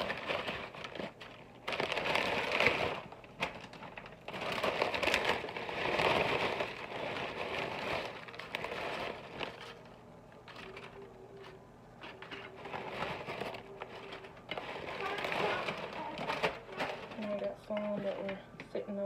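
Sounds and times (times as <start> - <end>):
chip bag crinkling: 0.0 - 18.4.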